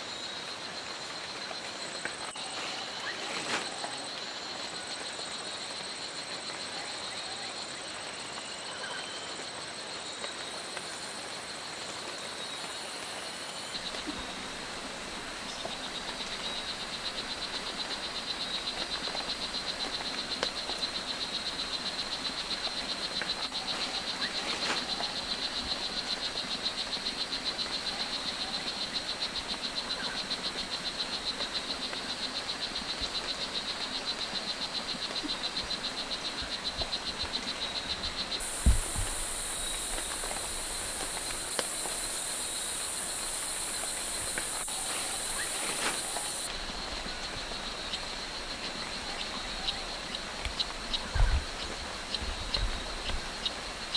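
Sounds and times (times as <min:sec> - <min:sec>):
frog chirping: 0:15.8 - 0:46.5.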